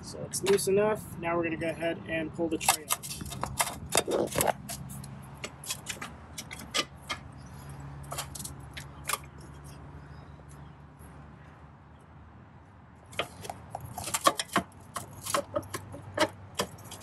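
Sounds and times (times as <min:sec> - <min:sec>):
plastic tray clicking and rattling: 0:02.6 - 0:04.8.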